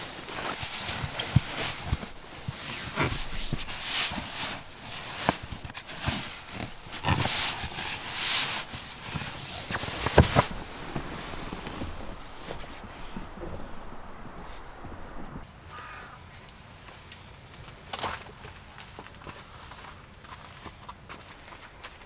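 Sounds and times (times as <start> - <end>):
nylon sleeping bag rustling: 0.0 - 15.4.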